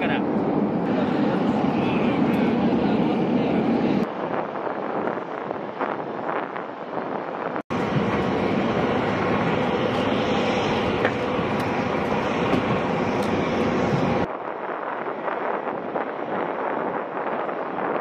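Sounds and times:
tiltrotor aircraft running: 0:00.0 - 0:05.8, 0:07.7 - 0:14.3
wind buffeting microphone: 0:00.0 - 0:18.0.

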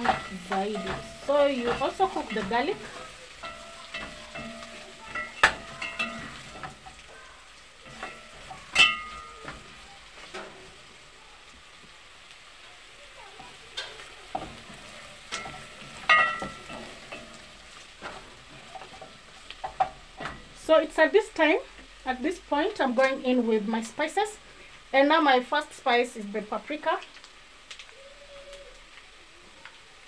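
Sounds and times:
spoon knocking on pot: 0:00.0 - 0:07.0, 0:07.9 - 0:10.5, 0:14.3 - 0:20.5
wooden spoon scraping a pot: 0:00.0 - 0:07.2
food sizzling in a pot: 0:00.0 - 0:30.0.

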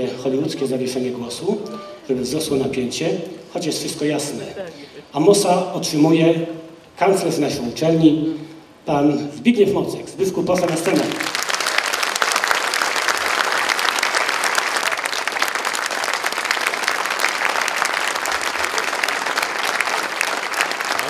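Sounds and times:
audience applauding: 0:10.6 - 0:21.0.

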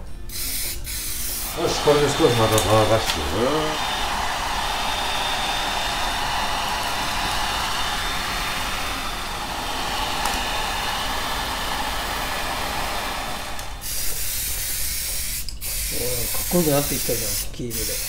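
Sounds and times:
hair dryer blowing: 0:01.4 - 0:14.1.

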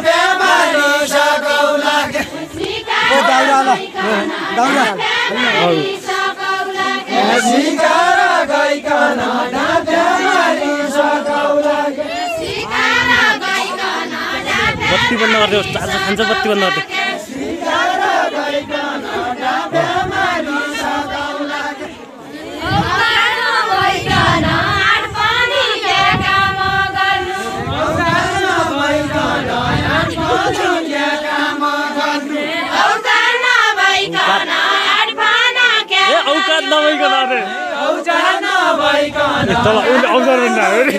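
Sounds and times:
voices singing folk song: 0:00.0 - 0:40.9.

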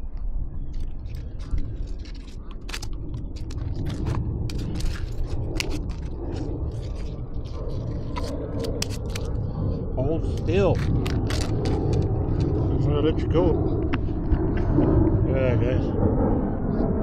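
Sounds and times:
steady low rumble: 0:00.0 - 0:17.0
handling clicks and scrapes: 0:00.8 - 0:09.4, 0:10.3 - 0:12.6.

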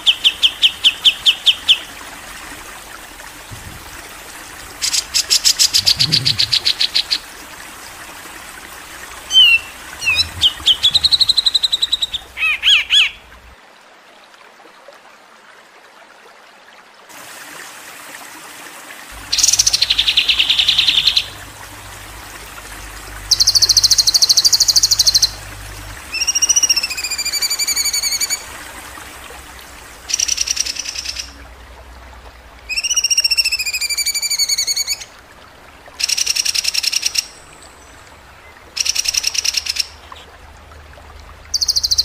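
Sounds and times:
songbird chirps: 0:00.0 - 0:02.1, 0:03.9 - 0:13.6, 0:19.2 - 0:31.4, 0:36.0 - 0:40.5, 0:41.4 - 0:42.0.

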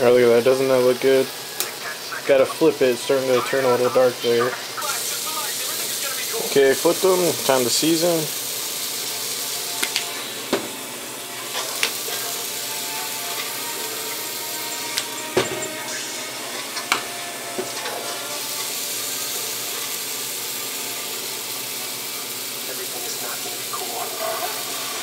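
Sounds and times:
chicken sizzling on electric grill: 0:00.0 - 0:25.0
seasoning shakers clicking: 0:09.6 - 0:10.1.

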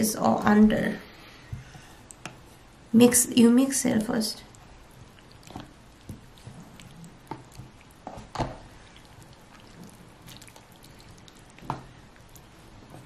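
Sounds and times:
wet stirring: 0:04.4 - 0:13.0.

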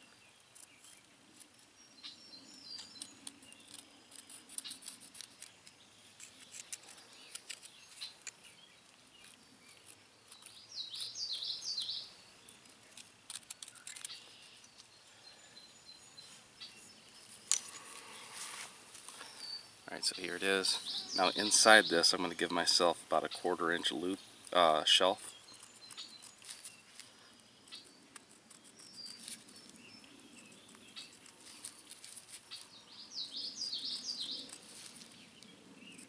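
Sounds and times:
bird chirps: 0:01.8 - 0:36.0
pencil scratching: 0:03.0 - 0:05.6.

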